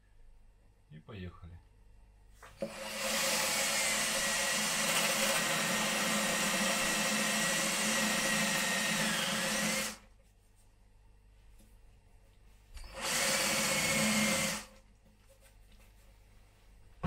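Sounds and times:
drill boring through wood: 2.6s - 10.0s, 12.8s - 14.8s
drill motor whine: 2.6s - 10.0s, 12.8s - 14.7s.

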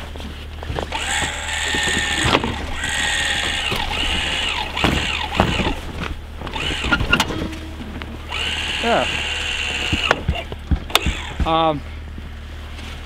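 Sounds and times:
metal hitch clunks: 0.0s - 11.8s
electric actuator whirring: 0.9s - 7.3s, 8.3s - 11.6s.

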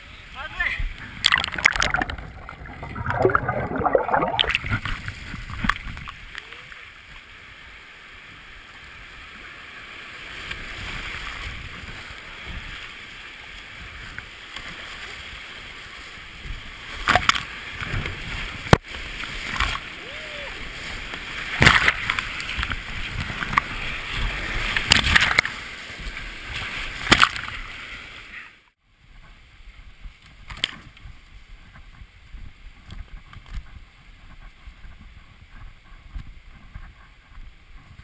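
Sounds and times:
whitewater rushing around hull: 0.4s - 28.4s
paddle splashes: 1.1s - 7.4s, 9.2s - 28.4s.

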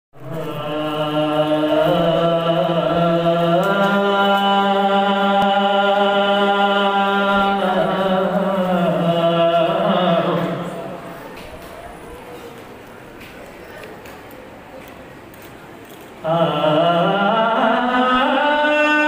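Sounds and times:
man chanting in held notes: 0.2s - 11.1s, 16.2s - 19.0s.

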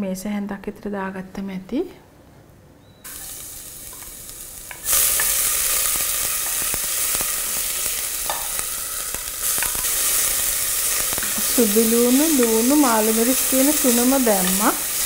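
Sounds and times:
food sizzling in hot oil: 3.1s - 15.0s.

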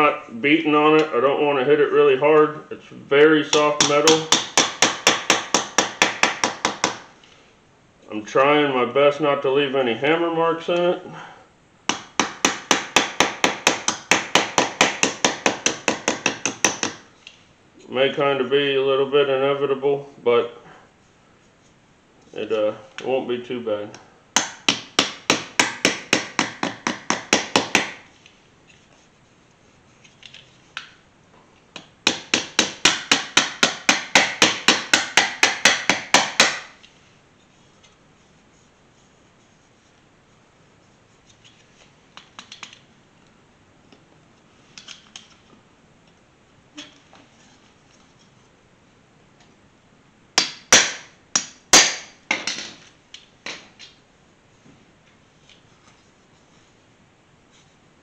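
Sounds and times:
hammer tapping metal: 3.5s - 7.1s.

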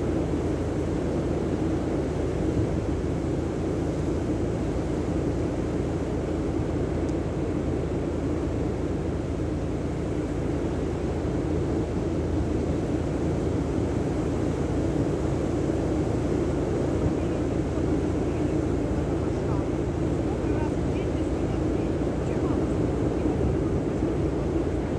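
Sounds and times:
sea surf rushing: 0.0s - 24.9s
wind on microphone: 11.5s - 24.9s.

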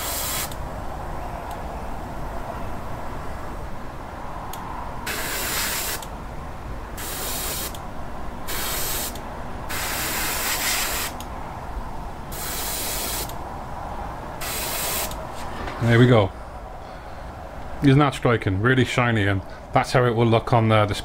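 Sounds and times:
airbrush hissing bursts: 0.0s - 0.6s, 5.1s - 6.1s, 7.0s - 7.8s, 8.5s - 11.2s, 12.3s - 13.4s, 14.4s - 15.2s.

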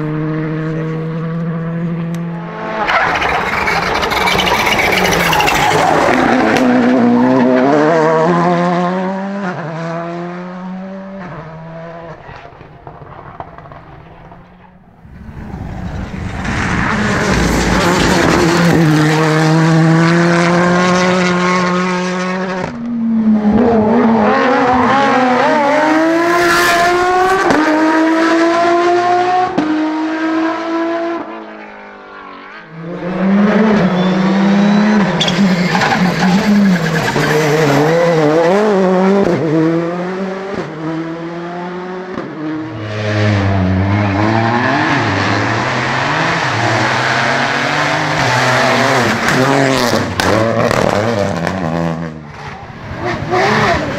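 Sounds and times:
rally car engines revving: 0.0s - 53.9s.

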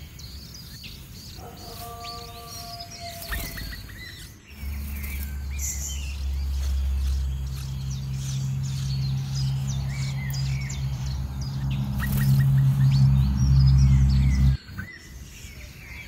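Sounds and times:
high bird chirps: 0.0s - 16.0s
low droning tones: 4.5s - 14.9s.

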